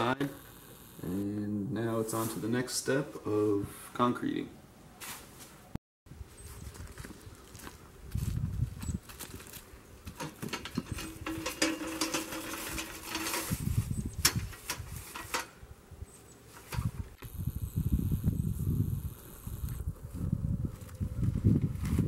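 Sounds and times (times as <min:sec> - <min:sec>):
footsteps crunching dry leaves: 0:06.4 - 0:10.2.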